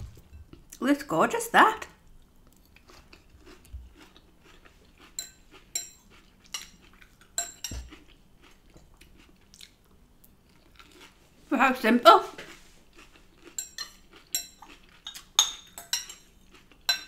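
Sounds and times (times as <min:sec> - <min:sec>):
chewing crisp salad: 0:02.1 - 0:17.0
metal fork clinking: 0:07.4 - 0:07.8, 0:13.6 - 0:16.2.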